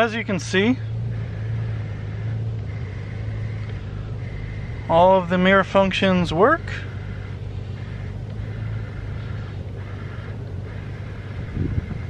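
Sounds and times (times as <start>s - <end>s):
steady low hum: 0.0s - 12.0s
mirror motor whirring: 1.0s - 4.9s.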